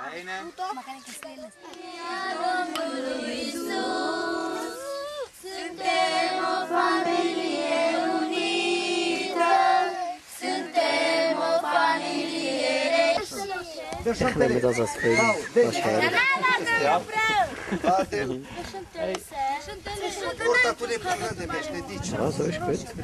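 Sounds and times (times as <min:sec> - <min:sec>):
group singing: 0:01.6 - 0:13.7.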